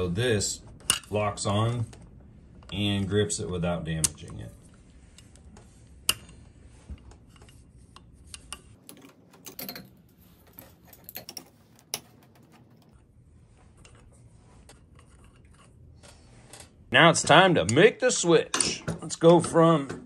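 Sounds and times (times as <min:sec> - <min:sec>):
tools handled on wooden bench: 0:05.1 - 0:13.1.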